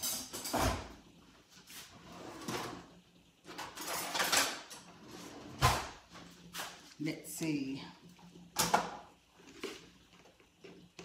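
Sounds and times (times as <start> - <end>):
drawer scrapes and knocks: 1.9 - 2.9.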